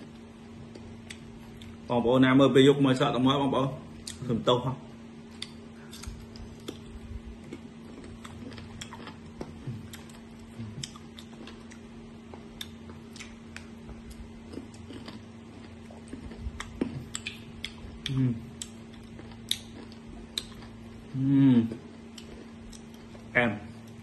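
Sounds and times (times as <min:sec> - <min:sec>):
crunchy chewing: 0:05.2 - 0:24.0.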